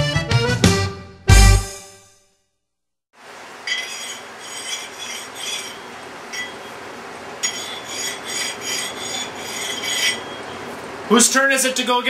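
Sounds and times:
metal scraping against metal: 0:03.6 - 0:10.9.

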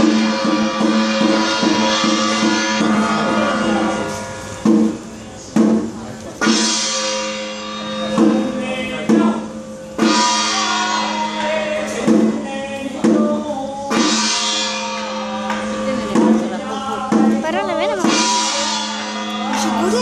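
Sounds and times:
steady drone: 0:00.0 - 0:05.2
cymbal crash: 0:00.0 - 0:12.6, 0:13.9 - 0:16.4, 0:18.0 - 0:20.0
drum strokes: 0:00.0 - 0:20.0.

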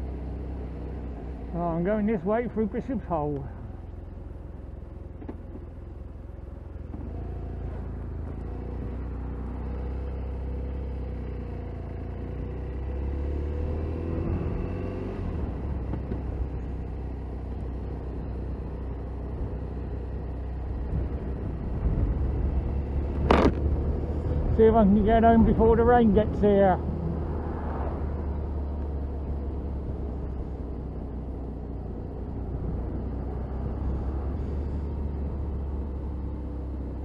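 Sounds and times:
motorcycle engine accelerating: 0:05.0 - 0:37.0
wind rumble on microphone: 0:20.7 - 0:28.8.

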